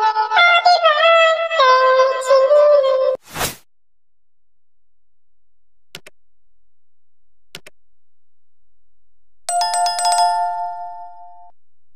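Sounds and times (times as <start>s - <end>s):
notification bell ringing: 9.5s - 11.5s.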